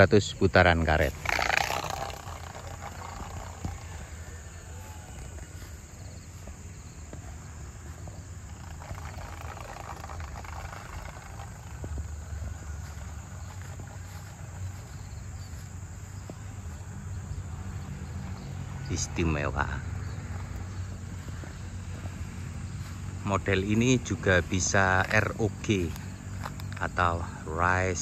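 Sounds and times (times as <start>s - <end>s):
faint insects chirping: 0.0s - 28.0s
wind rumbling on microphone: 1.0s - 18.0s.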